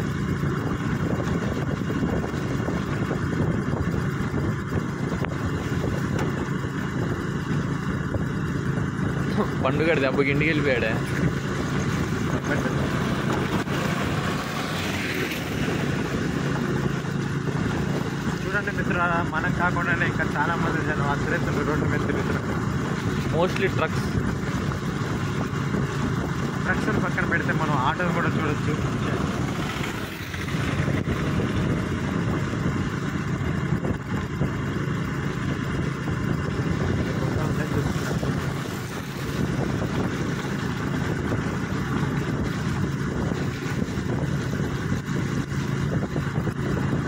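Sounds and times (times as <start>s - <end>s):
tyres on wet road: 0.0s - 47.0s
vehicle engine running: 0.0s - 47.0s
tyres hissing on wet road: 11.4s - 17.3s, 28.6s - 30.9s, 37.5s - 39.6s
wind hiss: 28.7s - 47.0s.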